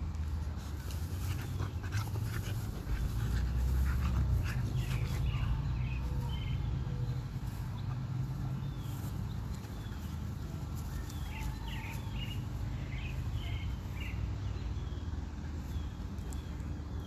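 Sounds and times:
grass rustling: 0.0 - 17.0
puppy panting: 0.6 - 6.5.

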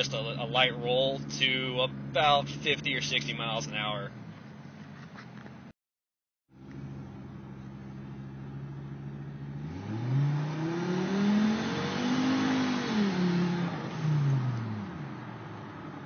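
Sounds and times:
truck engine revving: 8.4 - 14.8.

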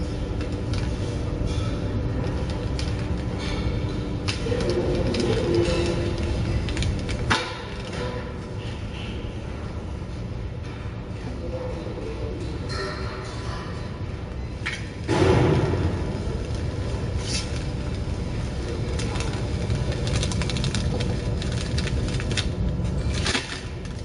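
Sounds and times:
packaging machine drone: 0.0 - 8.2.

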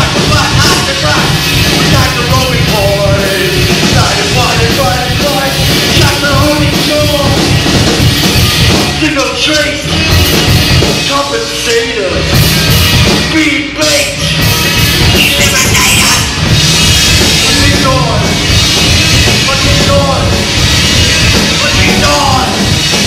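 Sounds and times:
drums: 0.0 - 23.0
rock band playing live: 0.0 - 23.0.

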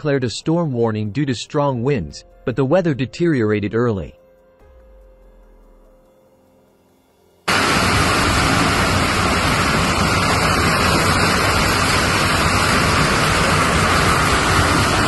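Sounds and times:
mudflow rushing: 7.5 - 15.0.

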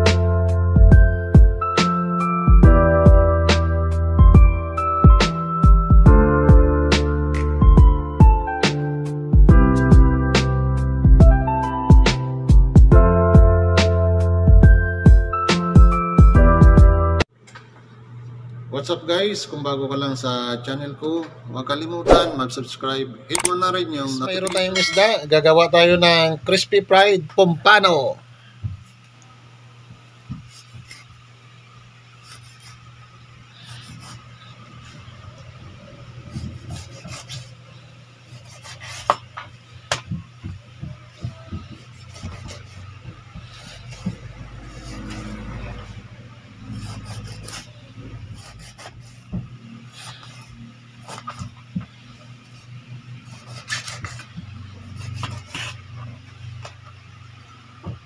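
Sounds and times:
knife scraping fish skin: 38.3 - 39.3, 53.2 - 54.3, 55.0 - 55.9
knife rasping through fish: 41.7 - 45.6, 53.3 - 54.3.

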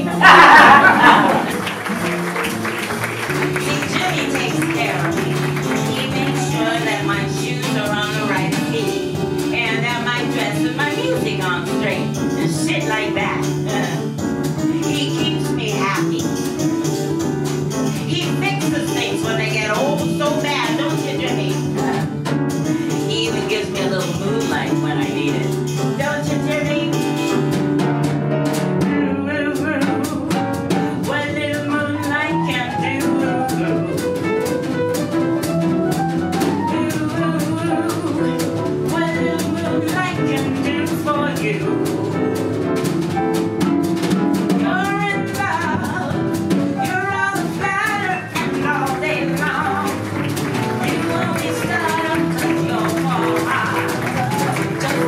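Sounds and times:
drum kit: 0.0 - 55.0
jazz band playing: 0.0 - 55.0.

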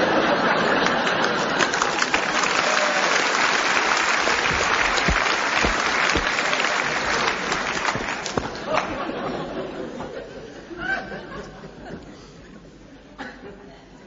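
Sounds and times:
audience applauding: 0.8 - 9.0.

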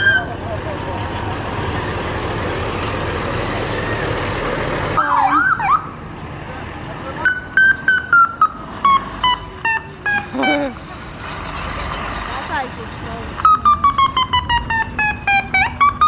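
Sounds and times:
fire truck engine rumble: 0.0 - 16.0
siren whoop: 5.0 - 5.9.

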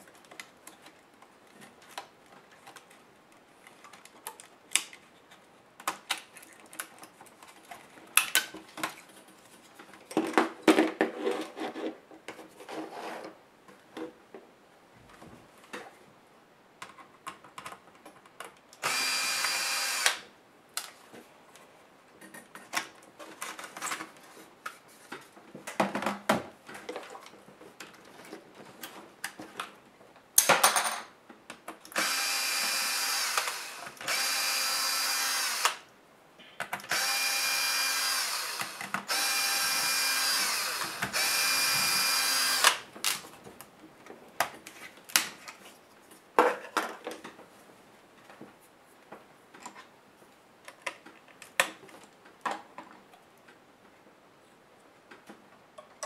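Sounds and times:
electric screwdriver motor whine: 18.8 - 20.2, 32.0 - 35.8, 36.9 - 42.8.

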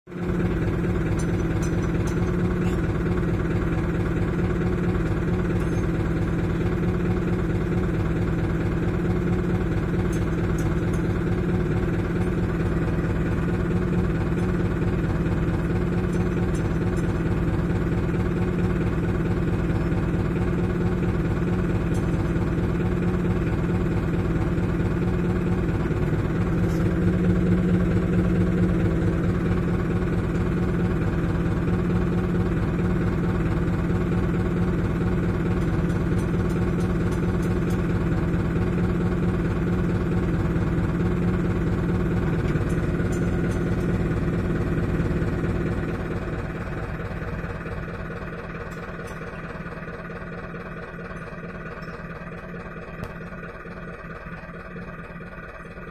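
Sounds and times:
diesel engine idling: 0.0 - 55.9.

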